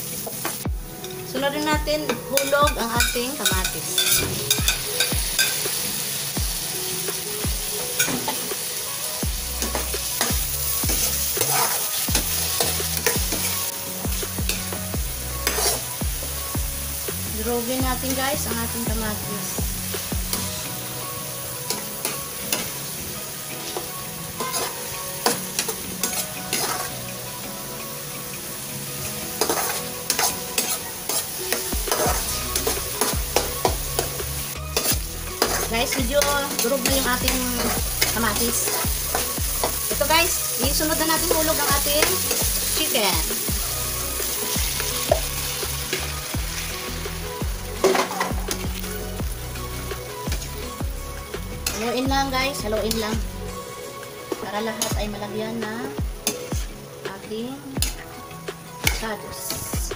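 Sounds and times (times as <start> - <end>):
background music with steady beat: 0.0 - 59.9
vegetables sizzling in hot oil: 0.0 - 59.9
metal spoon scraping pan: 2.0 - 5.7, 9.6 - 13.7, 15.4 - 16.0, 23.7 - 27.1, 29.3 - 39.9, 56.2 - 56.6.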